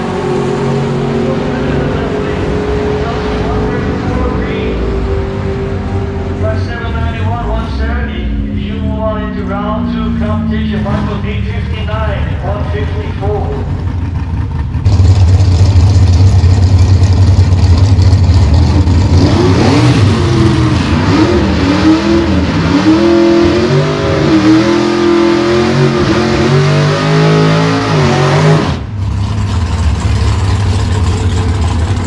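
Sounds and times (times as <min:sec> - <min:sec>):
race car engine idling: 0:00.0 - 0:19.4, 0:28.8 - 0:32.0
race car engine revving: 0:00.0 - 0:32.0.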